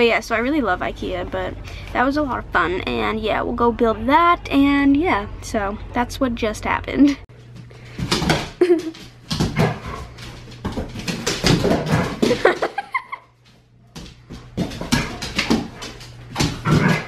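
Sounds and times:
dog claws clicking on floor: 13.4s - 17.0s.

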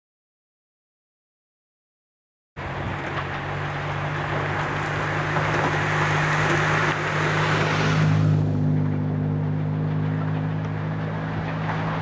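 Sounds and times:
electric locomotive hum: 2.6s - 12.0s
train rushing noise: 2.6s - 12.0s.

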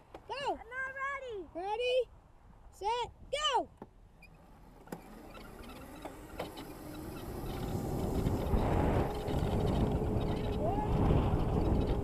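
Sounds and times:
electric motor hum: 4.2s - 12.0s
wind on microphone: 5.8s - 12.0s.

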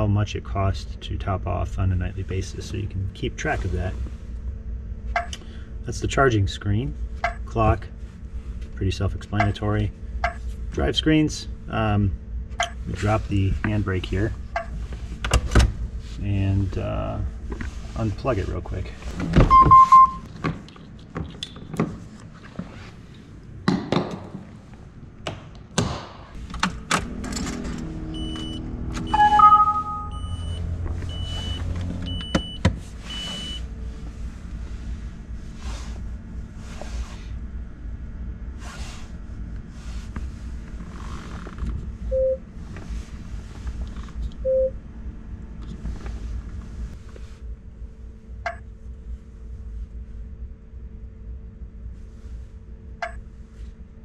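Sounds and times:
steady low hum: 0.0s - 54.0s
short electronic beeps: 19.5s - 20.3s, 28.2s - 33.6s.

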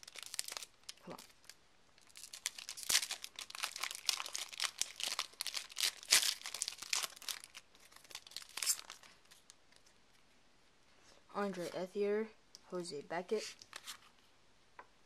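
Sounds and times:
foil wrapper crinkling and tearing: 0.0s - 9.9s.

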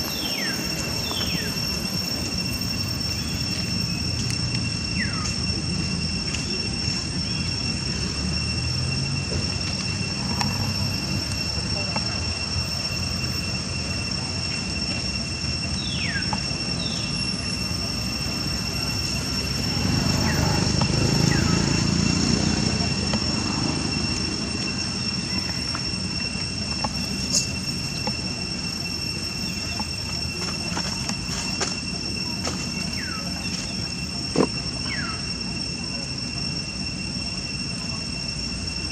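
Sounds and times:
insects droning: 0.0s - 38.9s.

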